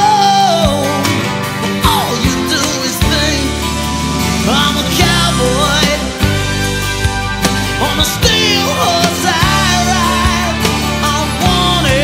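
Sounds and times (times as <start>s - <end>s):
song with bass and singing: 0.0s - 12.0s.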